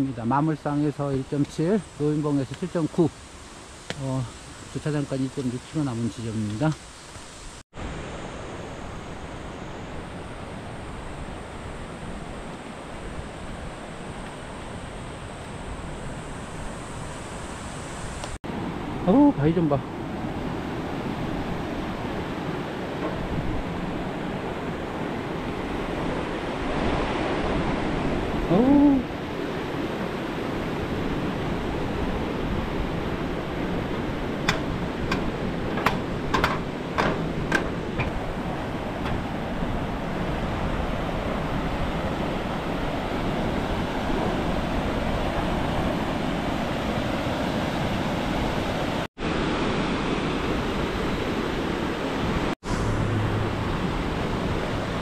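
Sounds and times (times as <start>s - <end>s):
pole tips clacking on steel deck: 34.4s - 38.2s.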